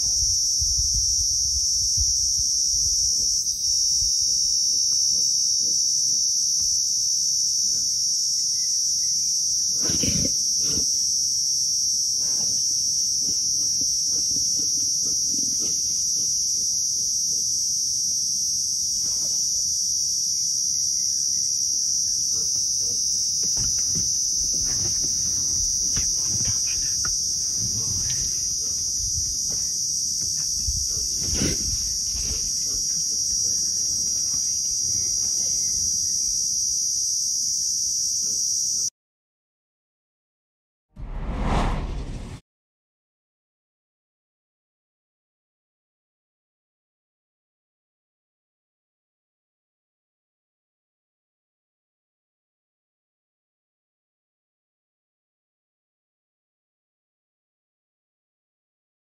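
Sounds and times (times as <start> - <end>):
insects droning: 0.0 - 38.9
low rumbling: 41.0 - 42.4.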